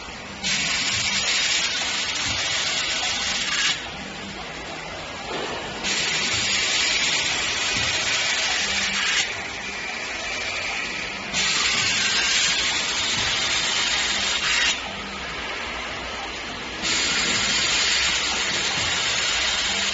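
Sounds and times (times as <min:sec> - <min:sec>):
pneumatic air hissing: 0:05.8 - 0:09.4, 0:11.3 - 0:14.8, 0:16.8 - 0:19.9.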